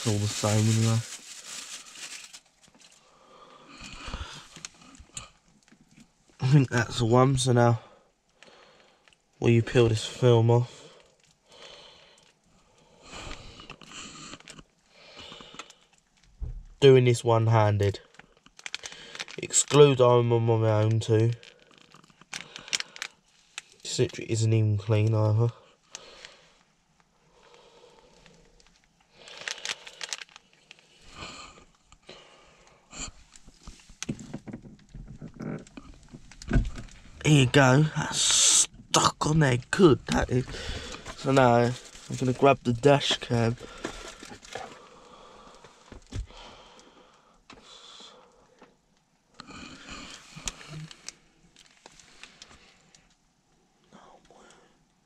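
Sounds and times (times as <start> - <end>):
rustling: 0.0 - 3.1, 27.4 - 31.3, 39.5 - 46.2
plastic crinkling and rustling: 0.0 - 6.4, 18.0 - 20.0, 20.8 - 24.2, 25.9 - 32.0, 33.1 - 46.4, 49.9 - 53.2.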